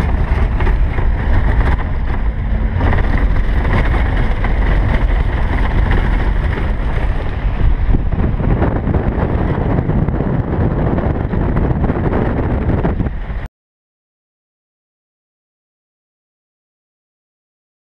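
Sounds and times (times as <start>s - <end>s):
engine and tyres rumbling: 0.0s - 13.5s
wind buffeting microphone: 0.0s - 13.5s.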